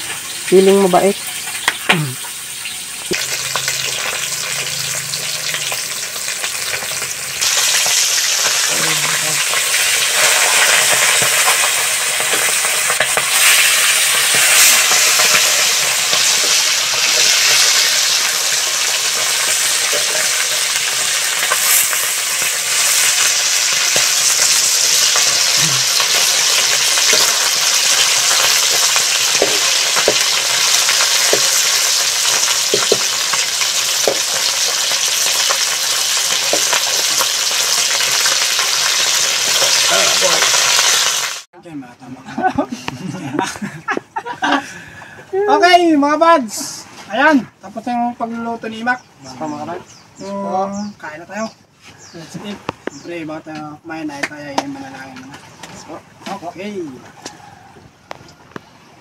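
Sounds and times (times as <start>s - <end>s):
fish sizzling in hot oil: 0.0s - 41.5s
metal spatula scraping wok: 26.2s - 39.9s.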